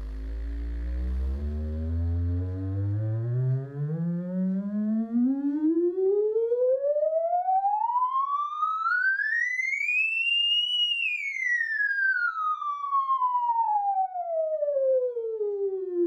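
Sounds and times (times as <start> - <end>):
test tone sweeping in pitch: 0.0 - 6.0.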